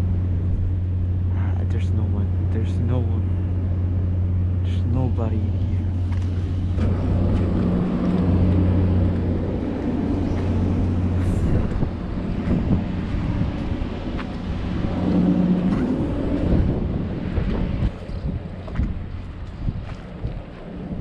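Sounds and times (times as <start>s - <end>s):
ship engine drone: 0.0s - 21.0s
wind on microphone: 5.4s - 21.0s
footsteps: 5.9s - 16.8s, 17.4s - 20.7s.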